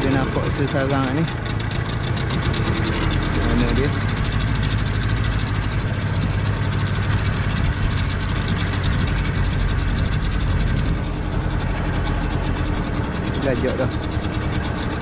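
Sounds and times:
outboard engine running: 0.0 - 15.0.

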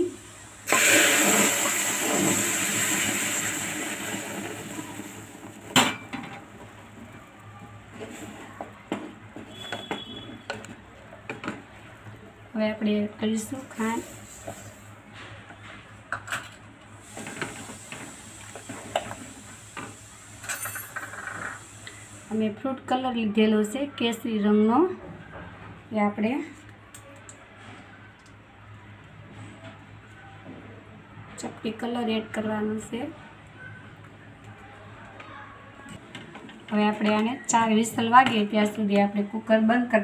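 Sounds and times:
water sizzling in hot fat: 0.0 - 5.8, 17.0 - 20.4.

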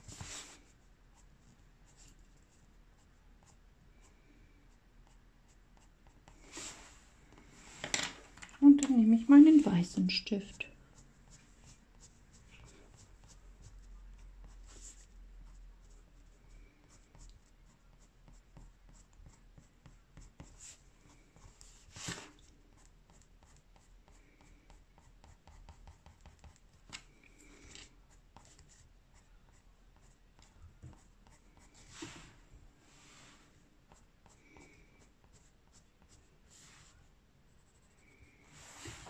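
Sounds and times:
pencil scratching on paper: 11.3 - 13.8, 14.4 - 16.0, 16.8 - 26.8, 27.8 - 32.2, 33.9 - 36.9.

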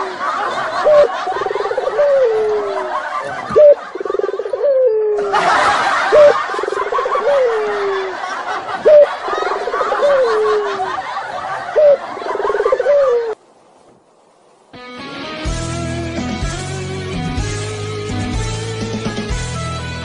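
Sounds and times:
crowd noise: 0.0 - 13.4.

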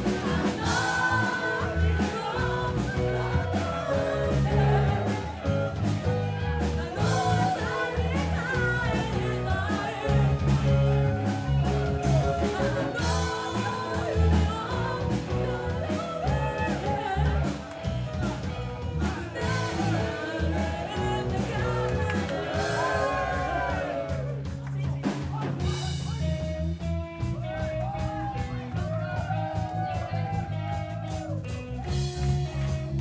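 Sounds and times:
woman singing lead: 0.0 - 24.4
drum kit: 0.0 - 33.0
electric bass guitar: 0.0 - 33.0.

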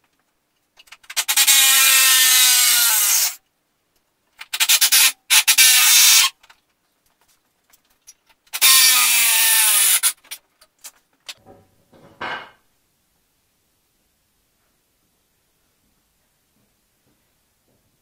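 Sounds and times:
power tool motor bursts: 1.2 - 3.4, 4.6 - 6.3, 8.6 - 10.2.

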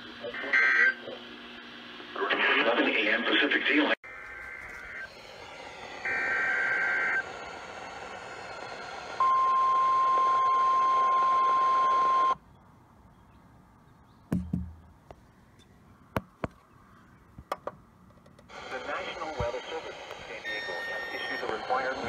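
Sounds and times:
radio static: 0.0 - 1.2, 2.1 - 5.1, 18.5 - 22.0
radio handling clicks and thump: 17.4 - 18.5.

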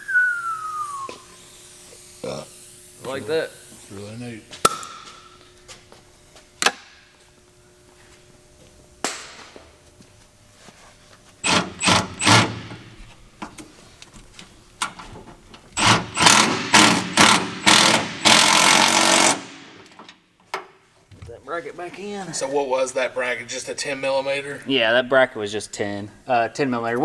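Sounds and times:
cordless impact driver: 11.4 - 12.9, 15.8 - 20.1.

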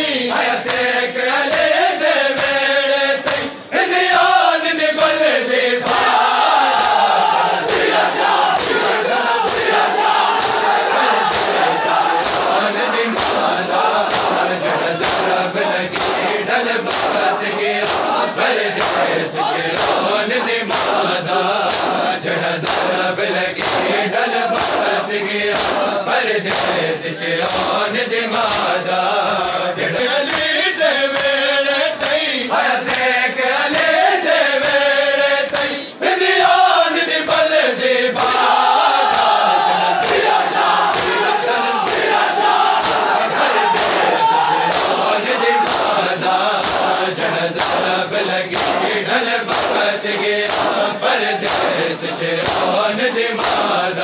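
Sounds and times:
crowd of men chanting: 0.0 - 54.0
lead voice singing: 0.0 - 54.0
chest beating slaps: 7.9 - 20.1, 20.7 - 23.0, 23.6 - 27.8, 28.4 - 28.7, 40.0 - 52.8, 53.4 - 53.8.

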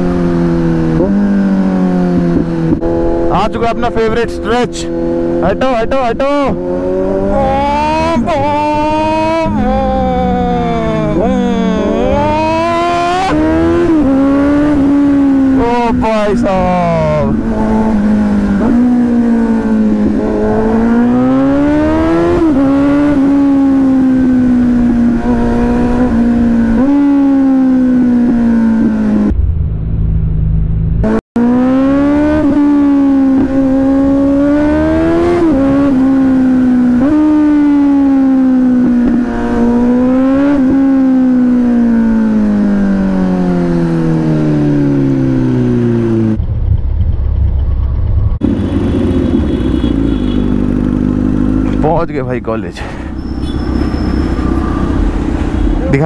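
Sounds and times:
motorcycle engine revving through gears: 0.0 - 3.6, 4.6 - 52.0, 52.8 - 56.0
low rumble: 29.2 - 31.1, 45.1 - 48.4, 52.6 - 56.0.

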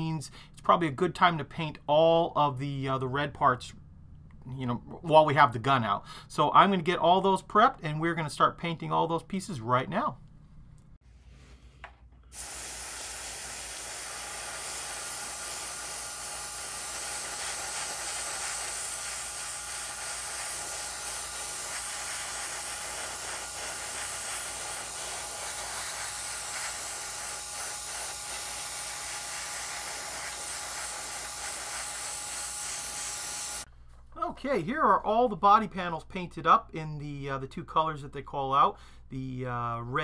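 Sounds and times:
airbrush spraying paint: 12.2 - 33.7.

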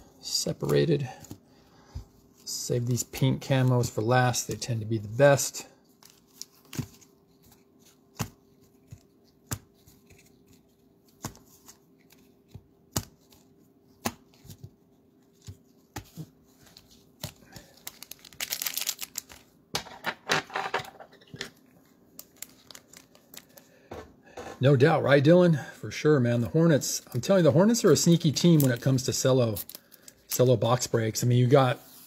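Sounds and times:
plastic wrapper ripping: 17.8 - 19.4.

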